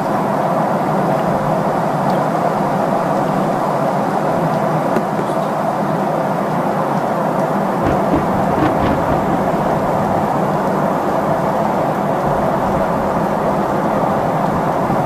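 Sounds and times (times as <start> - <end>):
airliner cabin engine noise: 0.0 - 15.0.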